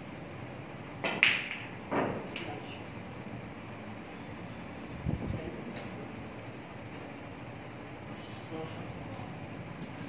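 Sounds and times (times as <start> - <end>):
snooker balls clicking: 1.0 - 2.5.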